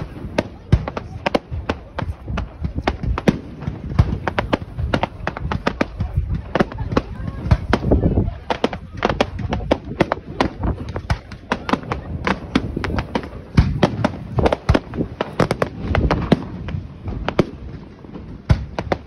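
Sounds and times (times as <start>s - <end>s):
fireworks bangs and crackles: 0.0s - 19.0s.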